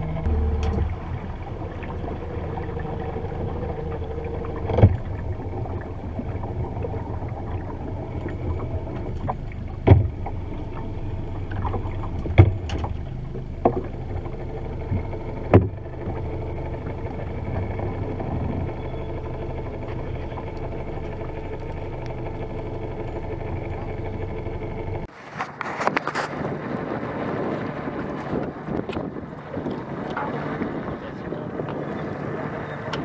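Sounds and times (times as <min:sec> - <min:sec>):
boat engine low hum: 0:00.0 - 0:33.0
water noise: 0:00.0 - 0:33.0
sharp knocks on boat: 0:04.6 - 0:05.1, 0:09.2 - 0:10.3, 0:11.5 - 0:13.0, 0:13.6 - 0:13.9, 0:14.9 - 0:16.2.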